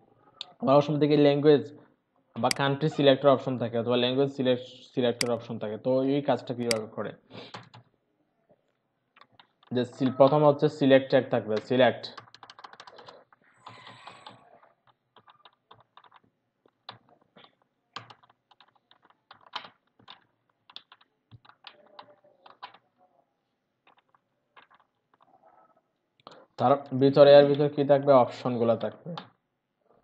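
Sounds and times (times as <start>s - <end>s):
typing on computer keyboard: 7.4s - 7.9s, 9.2s - 10.4s, 11.6s - 23.0s, 23.8s - 25.4s.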